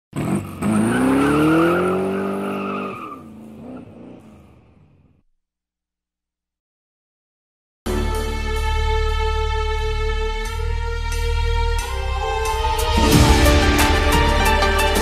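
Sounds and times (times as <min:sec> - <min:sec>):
car engine revving: 0:00.1 - 0:05.2.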